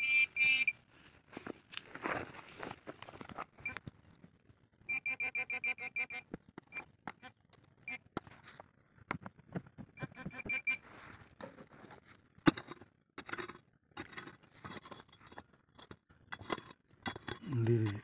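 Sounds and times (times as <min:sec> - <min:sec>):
metal detector beeping: 0:00.0 - 0:00.8, 0:04.9 - 0:08.1, 0:10.0 - 0:10.9
digging tool in stony soil: 0:10.5 - 0:18.0.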